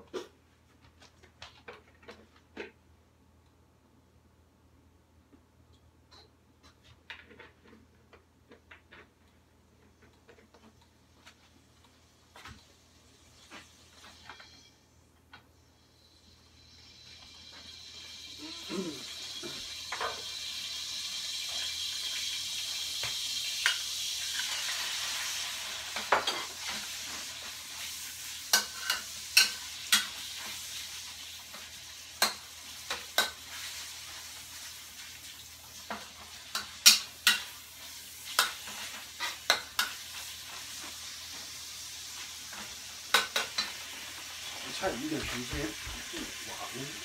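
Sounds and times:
meat sizzling in wok: 15.8 - 47.0
spatula clicking and scraping wok: 23.6 - 30.8, 31.5 - 34.3, 35.8 - 41.5.

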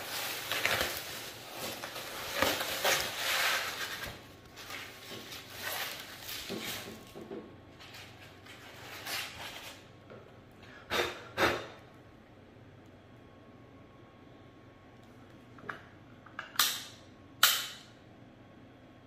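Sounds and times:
polystyrene foam scraping: 0.0 - 7.2, 7.8 - 9.9
plastic wrap crinkling: 0.0 - 9.9.

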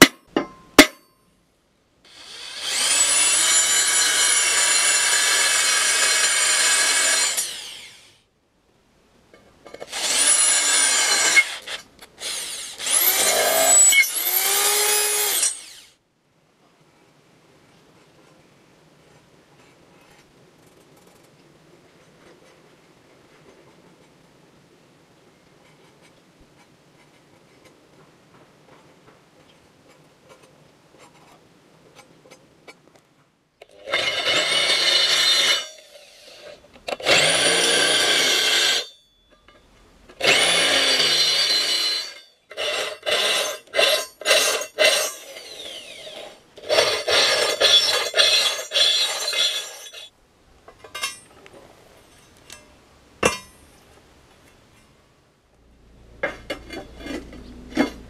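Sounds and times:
electric drill boring through steel: 2.1 - 8.2, 9.8 - 16.0, 33.8 - 39.0, 40.2 - 50.1.

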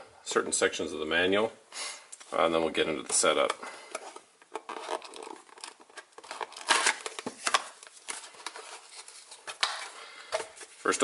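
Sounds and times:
cardboard box tearing and crinkling: 4.7 - 9.2.

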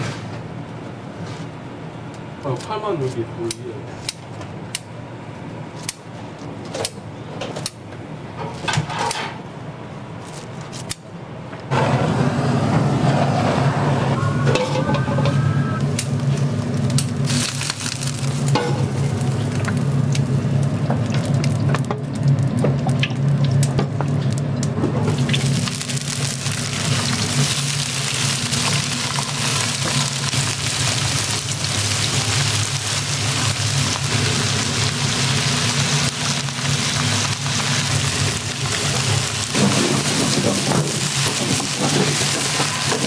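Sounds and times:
meat sizzling on a grill: 16.8 - 20.6, 25.1 - 43.0.

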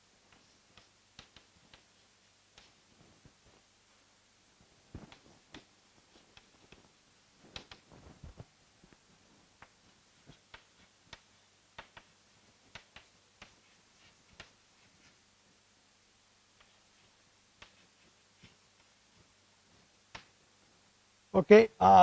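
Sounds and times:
chalk tapping on chalkboard: 0.3 - 2.8, 9.6 - 15.2, 16.6 - 19.3.

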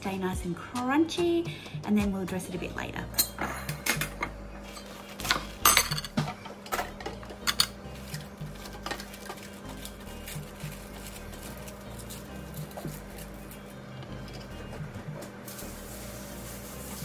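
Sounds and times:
lettuce leaves pulled apart: 7.9 - 13.8.

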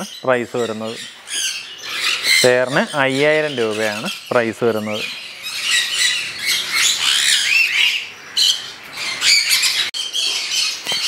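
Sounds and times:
parrots squawking and chirping: 0.0 - 11.0.

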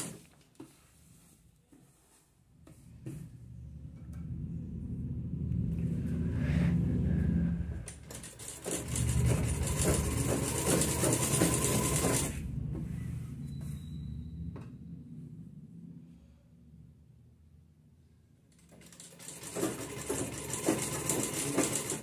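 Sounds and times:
sewing machine stitching: 7.9 - 12.4, 18.6 - 22.0.

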